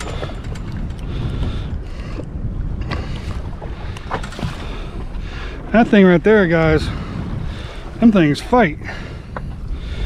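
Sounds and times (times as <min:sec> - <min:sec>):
low rumble: 0:00.0 - 0:05.6
water against boat hull: 0:00.0 - 0:06.7
wind buffeting microphone: 0:00.0 - 0:10.0.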